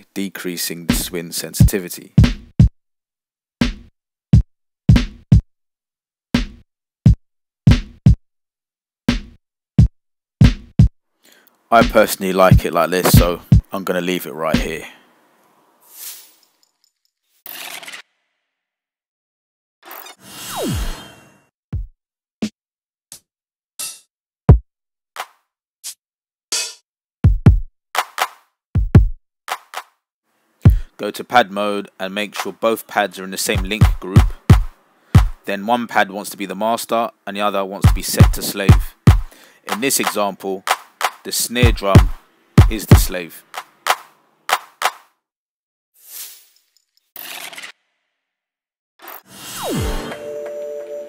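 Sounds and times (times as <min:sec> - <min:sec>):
hi-hats: 0:00.9 - 0:01.1, 0:37.9 - 0:44.0
kick and snare drum loop: 0:00.9 - 0:02.7, 0:03.6 - 0:03.9, 0:04.9 - 0:05.4, 0:06.4 - 0:06.6, 0:07.7 - 0:08.2, 0:09.1 - 0:09.4, 0:10.4 - 0:10.9, 0:11.8 - 0:13.7, 0:14.6 - 0:14.8, 0:27.2 - 0:29.2, 0:30.7 - 0:30.9, 0:33.5 - 0:35.4, 0:37.8 - 0:45.0
snare drum hits: 0:13.0 - 0:13.4, 0:37.9 - 0:45.1
finger taps on drum pads: 0:37.9 - 0:44.0.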